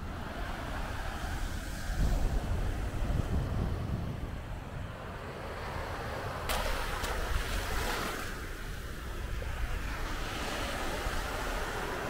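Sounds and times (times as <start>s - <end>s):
wind rumble on microphone: 0.0s - 12.0s
sea waves breaking: 5.0s - 12.0s.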